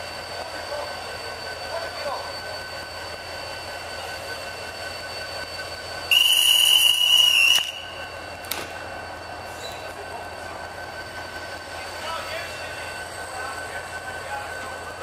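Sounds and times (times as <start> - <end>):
train high whine: 0.0 - 15.0
guard's whistle: 6.1 - 8.1.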